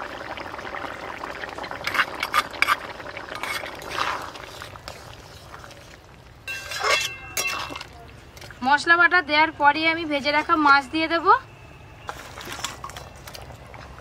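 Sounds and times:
curry bubbling in a pot: 0.0s - 8.6s
metal ladle scraping a pot: 1.8s - 5.8s, 6.5s - 8.5s.

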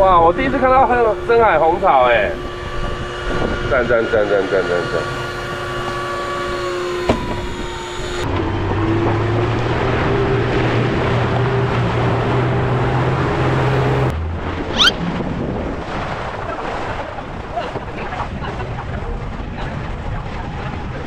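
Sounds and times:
boat engine droning: 0.0s - 21.0s
wind and water noise: 0.0s - 21.0s
short rising squeak: 14.7s - 15.0s.

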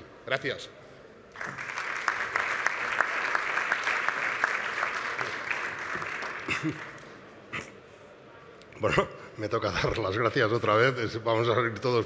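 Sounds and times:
audience applauding: 1.3s - 7.2s.

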